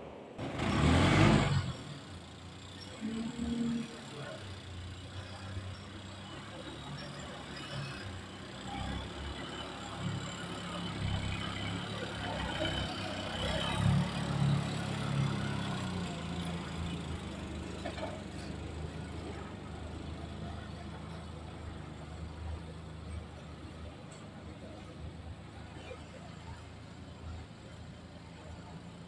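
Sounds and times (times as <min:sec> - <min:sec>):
forklift engine running: 0:00.4 - 0:29.0.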